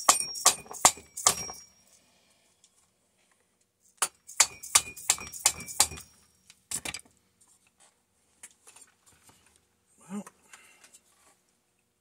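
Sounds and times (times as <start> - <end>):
metal tools clinking on metal parts: 0.0 - 1.8, 4.2 - 6.4.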